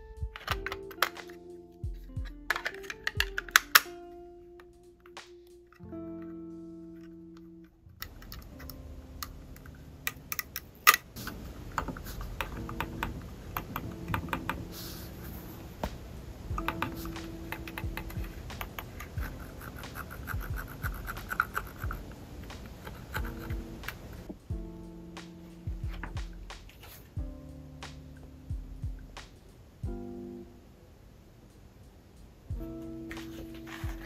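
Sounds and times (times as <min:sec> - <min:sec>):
hands rubbing plastic: 0:00.3 - 0:01.5, 0:02.1 - 0:03.8, 0:16.6 - 0:24.3, 0:25.9 - 0:27.1, 0:33.1 - 0:34.0.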